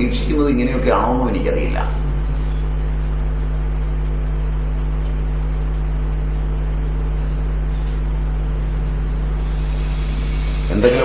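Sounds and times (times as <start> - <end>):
lecture speech: 0.0 - 2.5, 10.6 - 11.0
mains hum: 0.0 - 11.0.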